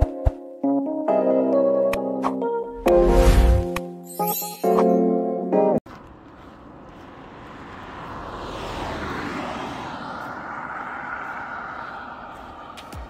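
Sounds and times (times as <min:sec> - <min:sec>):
vehicle passing: 0:05.9 - 0:13.0.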